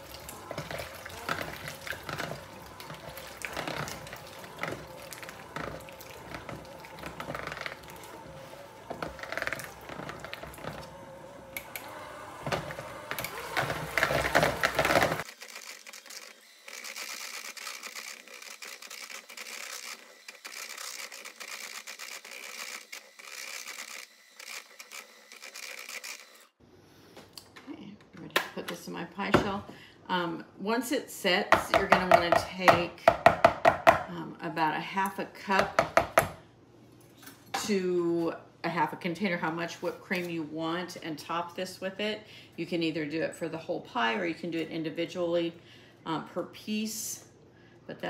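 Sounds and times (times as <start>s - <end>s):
mixer beaters knocking bowl: 0.0s - 11.0s, 11.6s - 15.2s, 31.5s - 34.1s, 35.5s - 36.4s
electric mixer motor whine: 0.0s - 26.6s.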